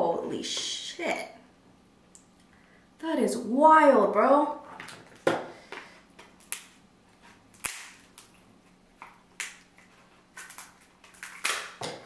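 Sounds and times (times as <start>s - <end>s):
crab shell cracking: 7.5s - 11.8s.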